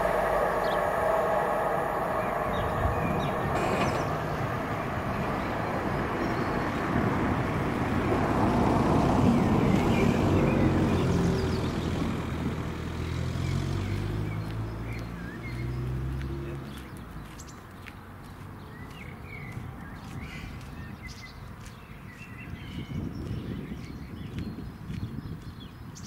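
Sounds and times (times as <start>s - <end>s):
car engine humming: 0.0s - 17.0s
road vehicle rumble: 0.0s - 26.0s.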